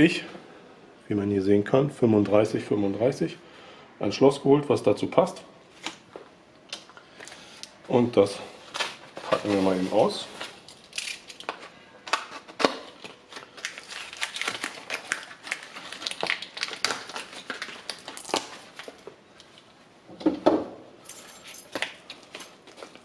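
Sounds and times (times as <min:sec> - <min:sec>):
packaging crinkling: 0:08.6 - 0:19.2
packaging tearing: 0:08.7 - 0:19.0.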